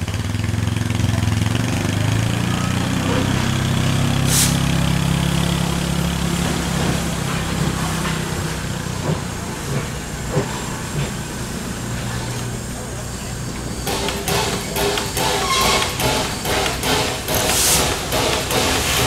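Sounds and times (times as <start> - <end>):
steam hissing: 3.9 - 19.0.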